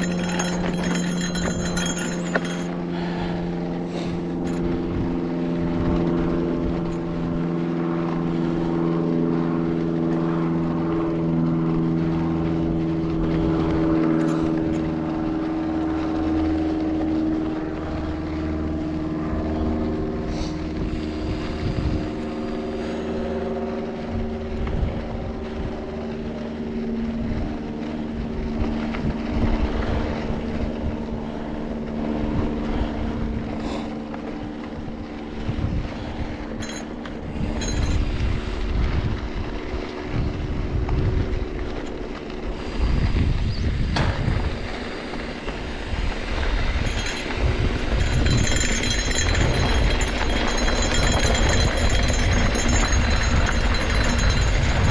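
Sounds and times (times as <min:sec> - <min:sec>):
steady droning hum: 0:00.0 - 0:54.9
wind on camera: 0:20.7 - 0:22.4, 0:32.2 - 0:54.9
bike tyres rumbling on dirt: 0:35.4 - 0:54.9.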